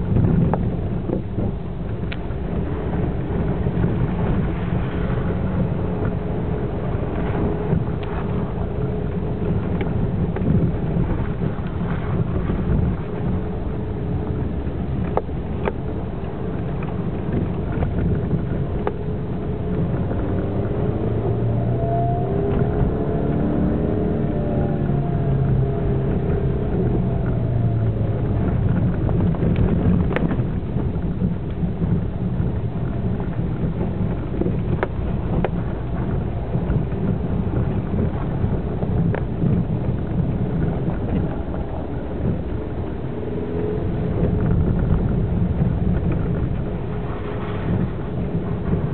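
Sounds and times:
engine and tyre rumble: 0.0 - 48.9.

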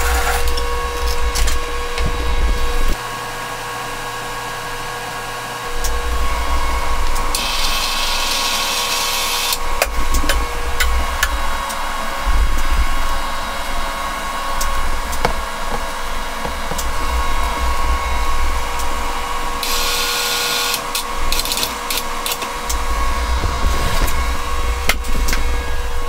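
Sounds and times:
low rumble: 0.0 - 3.0, 5.7 - 7.4, 9.6 - 19.7, 22.1 - 26.0
electric motors whining: 0.0 - 26.0.

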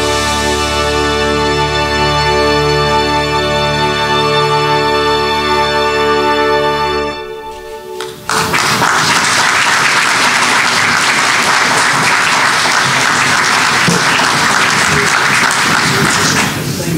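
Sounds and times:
congregation applauding: 8.0 - 16.9.

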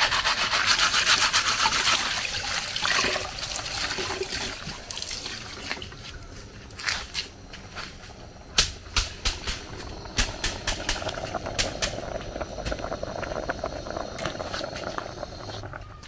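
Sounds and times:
steady background noise: 0.1 - 16.0.

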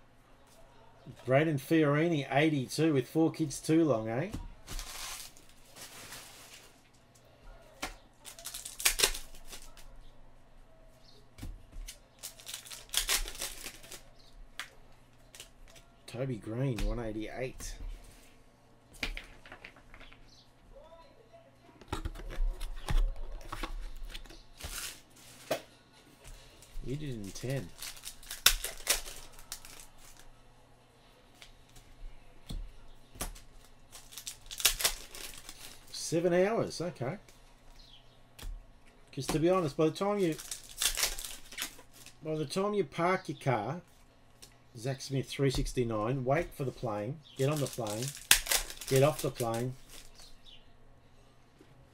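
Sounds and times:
cards rustling: 4.6 - 6.8, 7.8 - 9.9, 11.8 - 15.9, 22.0 - 25.6, 26.3 - 30.3, 33.2 - 36.2, 39.2 - 42.2, 45.5 - 50.4
foil wrapper tearing and crinkling: 4.7 - 6.8, 8.2 - 9.9, 11.8 - 14.1, 24.6 - 25.4, 26.9 - 30.3, 33.3 - 36.0, 39.6 - 42.2, 47.4 - 50.3
cards snapping and sliding: 8.3 - 9.8, 27.8 - 30.2.

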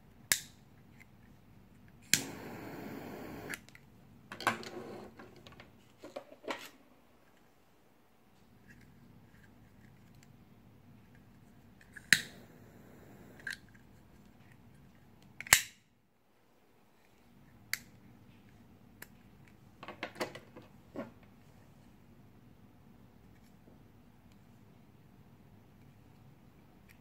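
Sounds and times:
metal lighters clicking: 12.0 - 13.6.

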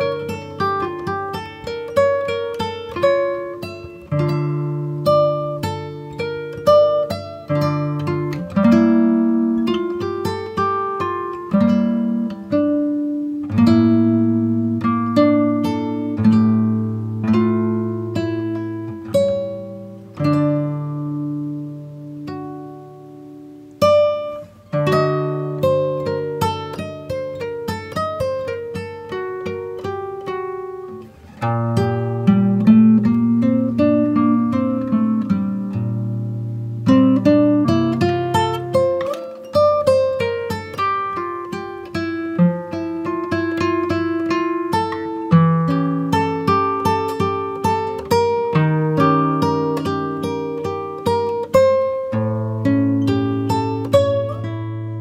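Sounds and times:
acoustic guitar strumming chords: 0.0 - 55.0.

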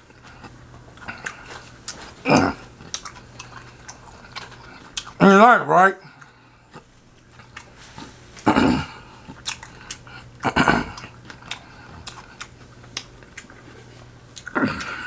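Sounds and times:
close chewing: 0.1 - 5.3, 6.0 - 15.0
wet mouth clicks and smacks: 9.3 - 10.1, 11.0 - 13.6.

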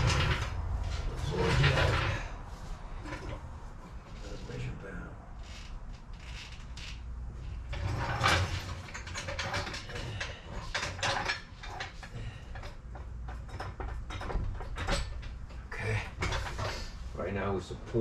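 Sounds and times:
tools clicking and scraping: 6.1 - 17.0.

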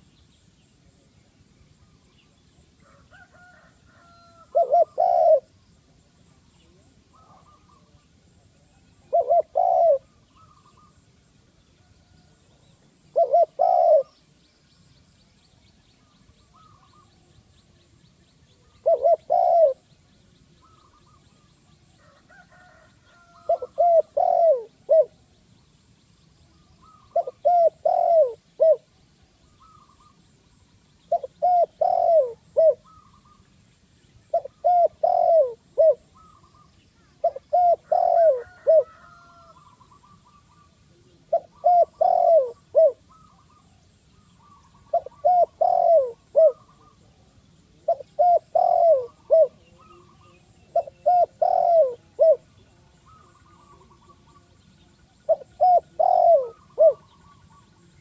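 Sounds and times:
dove cooing: 2.8 - 5.6, 6.6 - 8.0, 8.6 - 11.0, 12.0 - 14.2, 18.6 - 19.8, 20.6 - 25.2, 26.6 - 30.2, 31.1 - 33.4, 34.3 - 43.8, 44.4 - 54.6, 55.2 - 57.9.

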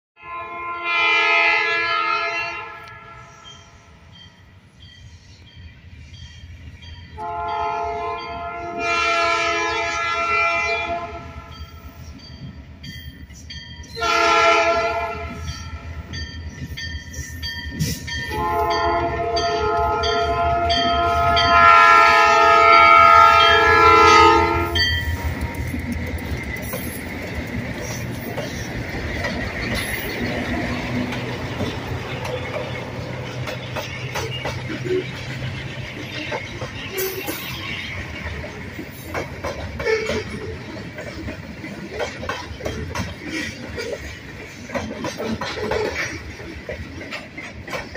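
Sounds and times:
locomotive air horn blasts: 0.2 - 3.4, 7.2 - 11.5, 14.0 - 15.5, 18.2 - 25.3
train wheel noise: 2.8 - 47.9
diesel engines rumbling: 21.2 - 47.7.

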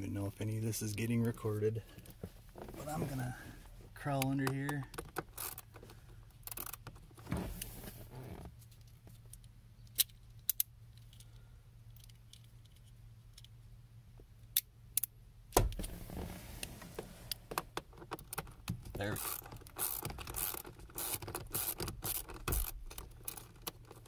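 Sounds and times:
shuffling movement: 0.3 - 4.0.

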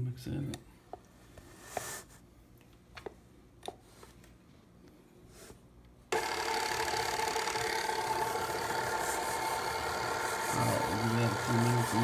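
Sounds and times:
stand mixer motor whine: 6.1 - 12.0.

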